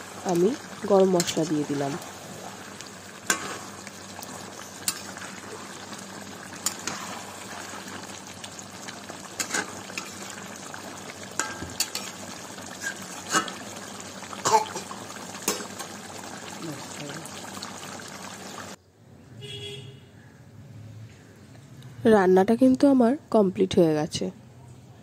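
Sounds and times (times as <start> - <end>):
curry simmering and bubbling: 0.0 - 18.8
spatula clinking and scraping pan: 4.8 - 5.2, 11.4 - 12.2.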